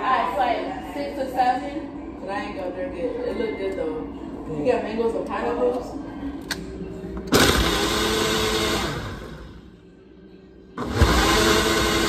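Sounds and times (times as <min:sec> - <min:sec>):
blender blending: 0:07.4 - 0:09.4, 0:10.8 - 0:12.0.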